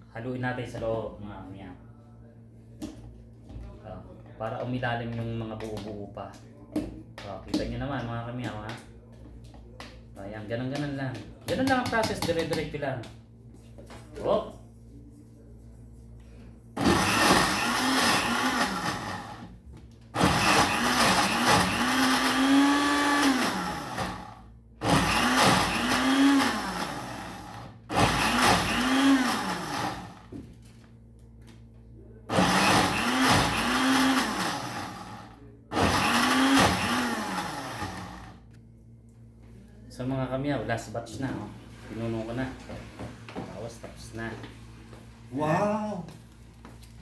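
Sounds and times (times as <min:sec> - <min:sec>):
electric blender grinding: 0:16.8 - 0:19.5, 0:20.2 - 0:30.3, 0:32.3 - 0:38.4.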